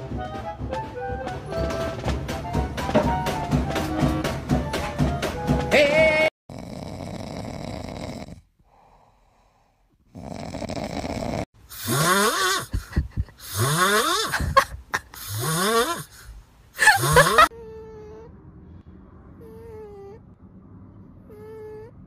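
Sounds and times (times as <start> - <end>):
pets snoring: 6.5 - 14.5, 15.2 - 18.3, 19.4 - 20.2, 21.2 - 22.0.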